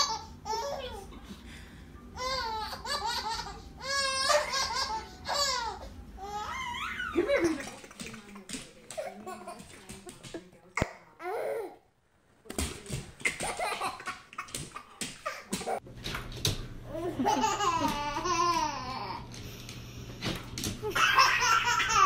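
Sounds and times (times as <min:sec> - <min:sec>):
baby laughing: 0:00.0 - 0:01.1, 0:02.2 - 0:10.4, 0:13.2 - 0:15.8, 0:16.9 - 0:19.2, 0:20.8 - 0:22.0
low steady hum: 0:00.0 - 0:22.0.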